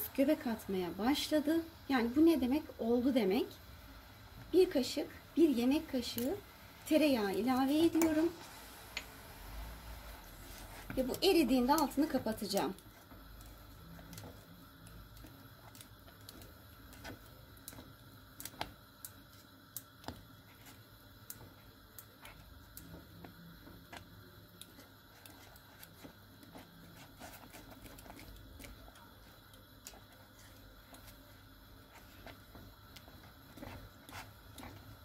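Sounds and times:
whisk scraping metal pot: 24.8 - 35.0.

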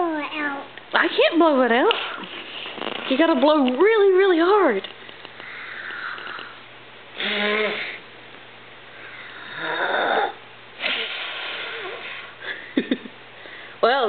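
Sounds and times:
child blowing hard: 7.2 - 8.0, 9.0 - 12.4.

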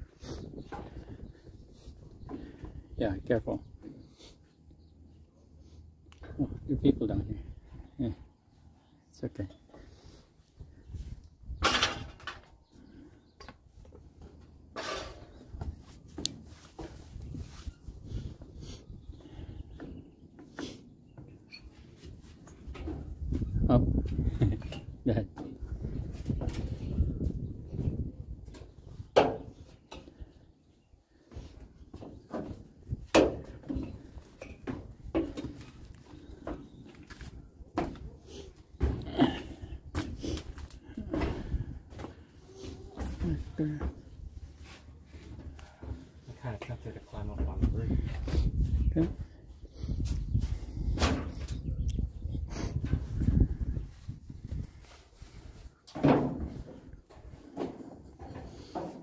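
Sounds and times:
wind rumble on microphone: 0.0 - 3.8, 10.6 - 12.8, 16.8 - 20.1, 22.5 - 30.3, 38.8 - 41.9, 47.0 - 55.7
thuds and clanks: 11.6 - 12.4, 50.9 - 51.6, 55.9 - 59.0.

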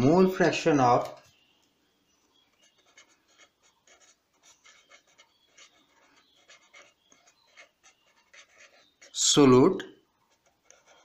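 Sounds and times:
marker scratching on paper: 2.4 - 9.5, 10.1 - 11.0.

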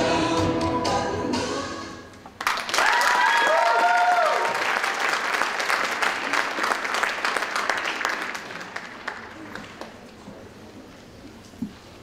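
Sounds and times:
audience applauding: 2.4 - 10.0
high cheers: 2.7 - 5.1.

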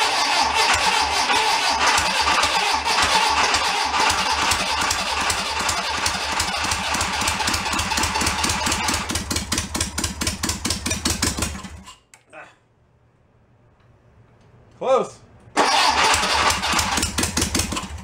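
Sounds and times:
car engine running roughly: 0.0 - 11.8, 15.6 - 18.0.

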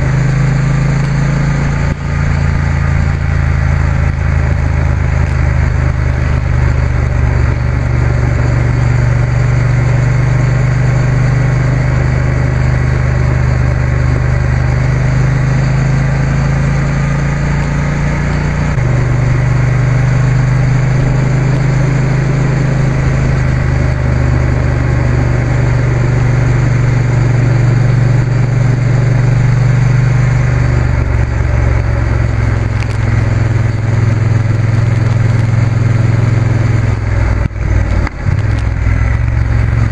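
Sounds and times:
motorcycle engine cruising: 0.0 - 39.9
wind and road noise: 0.0 - 39.9.

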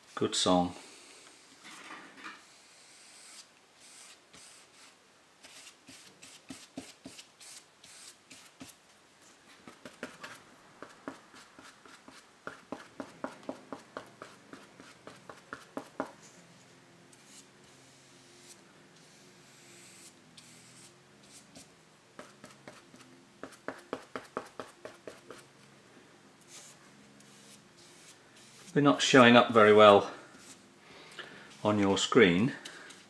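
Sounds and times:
brush dabbing and mixing paint: 3.8 - 25.7, 26.4 - 33.0
paintbrush strokes on paper: 9.6 - 25.6, 26.4 - 33.0.

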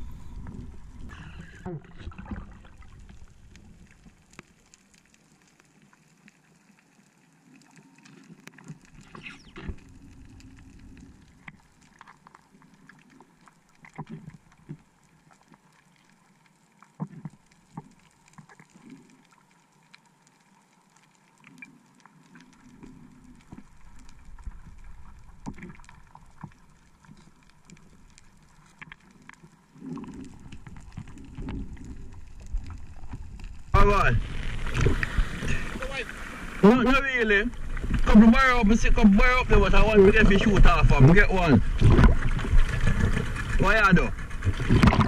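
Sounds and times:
muffled underwater rumble: 0.0 - 4.9, 8.8 - 11.9, 29.3 - 45.0
water rushing: 29.8 - 45.0.

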